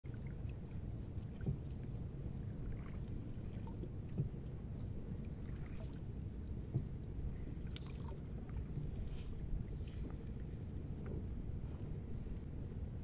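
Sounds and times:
steady low rumble: 0.0s - 13.0s
soft knocks against boat: 1.2s - 1.8s, 2.8s - 4.5s, 6.6s - 7.2s, 11.0s - 11.4s.

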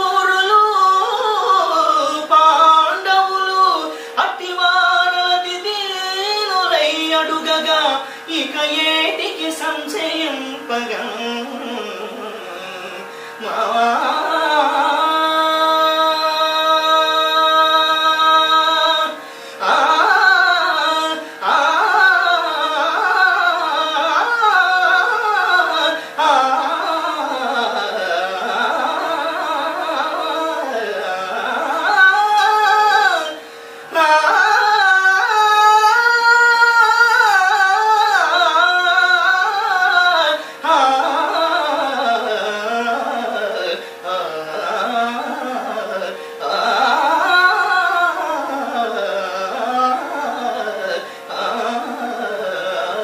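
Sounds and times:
man singing classical melismas: 0.0s - 53.0s.

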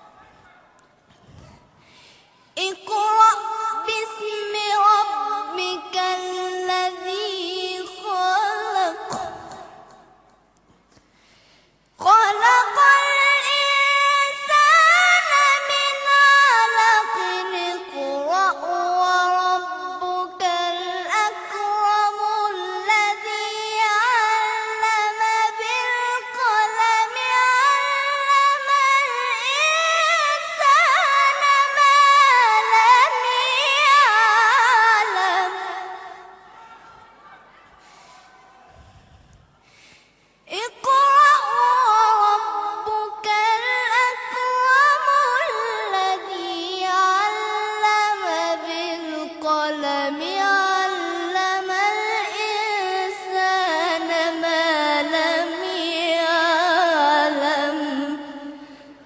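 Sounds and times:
person reciting melodically: 2.6s - 10.3s, 12.0s - 36.6s.

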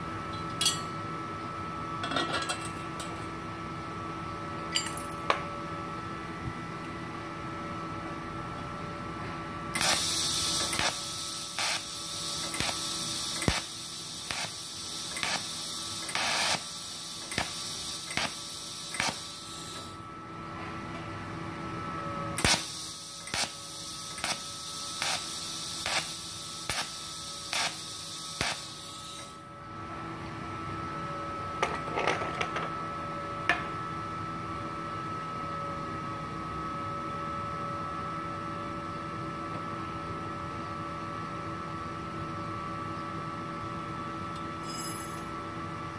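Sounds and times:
welding arc hissing: 9.8s - 20.0s, 22.4s - 29.4s.

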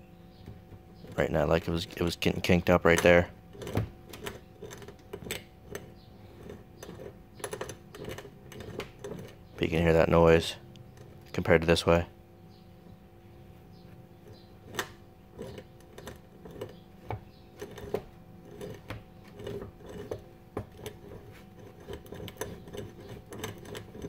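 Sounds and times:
universal joint clicking and knocking: 2.6s - 9.6s, 14.2s - 24.0s.

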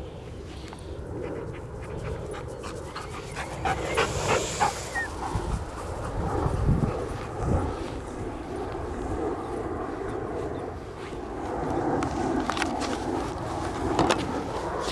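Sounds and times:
steady low rumble: 0.0s - 14.9s
dog panting: 1.1s - 8.1s.

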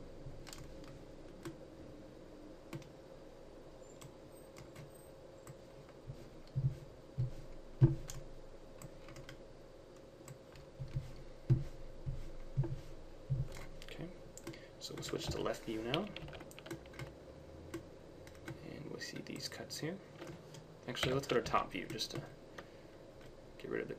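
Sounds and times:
faint steady hum: 0.0s - 23.9s
keyboard and mouse clicks: 0.4s - 1.6s, 2.7s - 2.9s, 3.9s - 5.6s, 6.4s - 9.4s, 13.4s - 19.5s, 20.2s - 23.4s.

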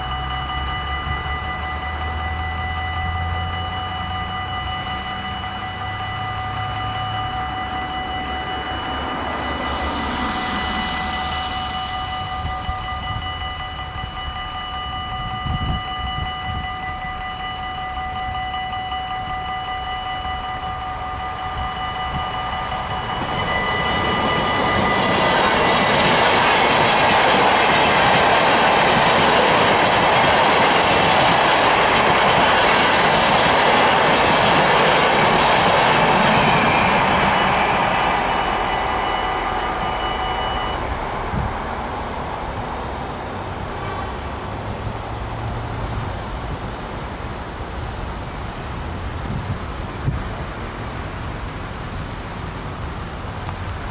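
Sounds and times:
level crossing bell ringing: 0.0s - 41.4s
train passing: 0.0s - 53.9s.

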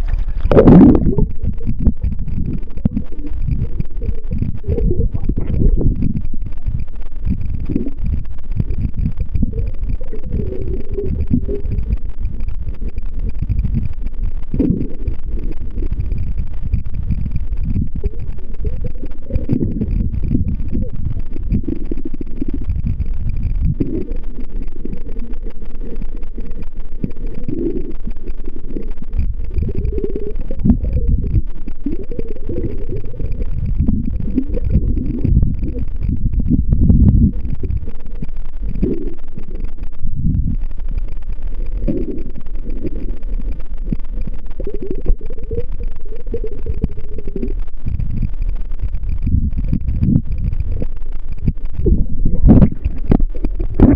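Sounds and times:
underwater rumble: 0.0s - 53.9s.

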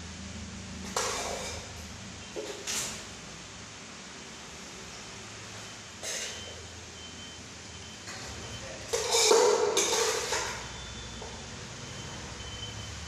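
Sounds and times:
metal pot scraping on tiles: 0.8s - 3.1s, 6.0s - 6.6s, 8.8s - 10.8s.

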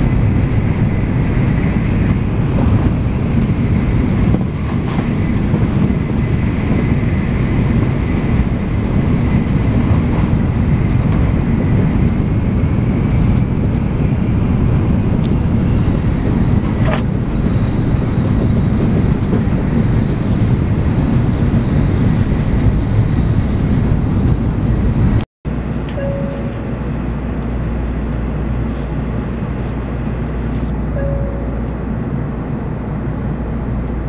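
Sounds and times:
rushing air: 0.0s - 25.2s
train wheels rumbling on rail: 0.0s - 34.0s.

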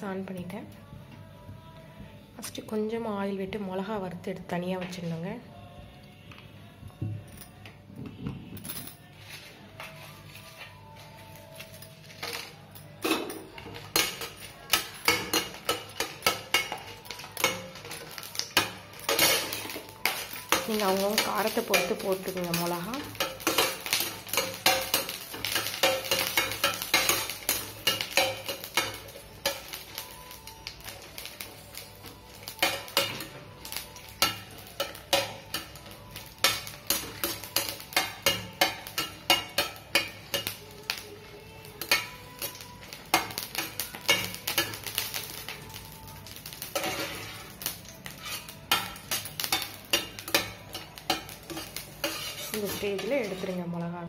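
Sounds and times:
light sizzle: 13.3s - 54.0s
spatula scraping metal pan: 48.1s - 53.6s.

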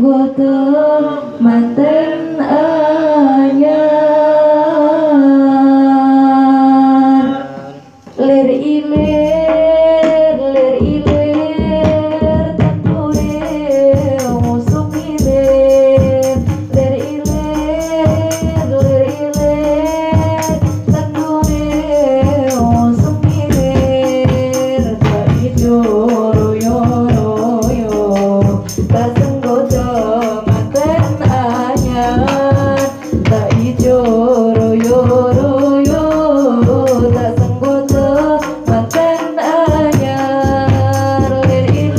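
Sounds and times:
woman singing: 0.0s - 7.5s, 8.1s - 41.9s
hand drums beating: 8.8s - 41.9s.

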